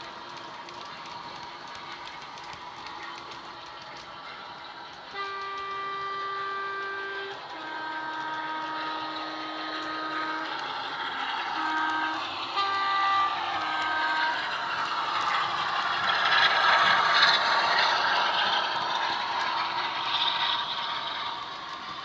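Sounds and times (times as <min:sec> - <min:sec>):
diesel engine sound: 0:00.0 - 0:22.0
two-tone horn blasts: 0:05.1 - 0:16.5.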